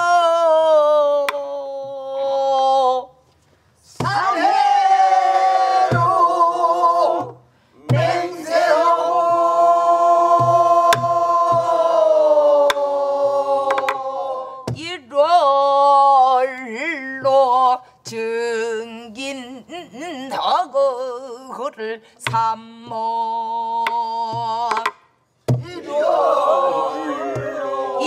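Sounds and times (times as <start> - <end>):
voices singing with vibrato: 3.8 - 17.4, 25.5 - 28.0
barrel drum thumps: 5.9 - 6.2, 7.2 - 8.4, 10.3 - 11.8, 24.3 - 25.8.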